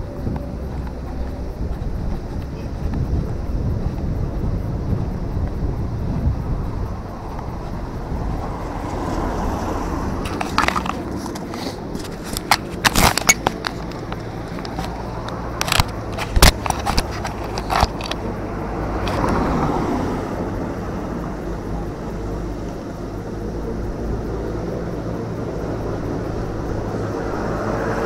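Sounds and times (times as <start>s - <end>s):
low outdoor rumble: 0.0s - 28.0s
rush of noise: 0.0s - 28.0s
sharp clicks and knocks: 10.2s - 18.4s.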